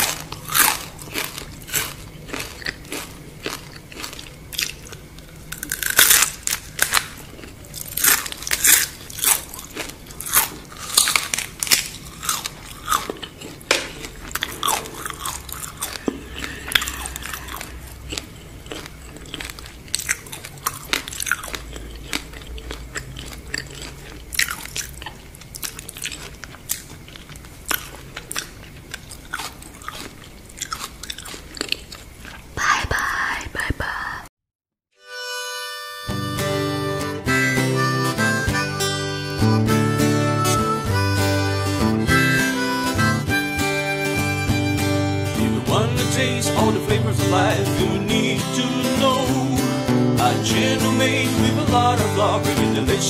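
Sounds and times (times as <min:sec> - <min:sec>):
crunchy chewing close to microphone: 0:00.0 - 0:32.6.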